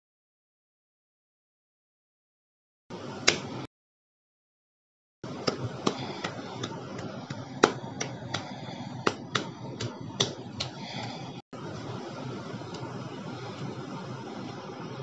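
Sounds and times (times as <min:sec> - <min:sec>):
hand clicks and slaps: 0:03.2 - 0:03.5, 0:05.4 - 0:10.8.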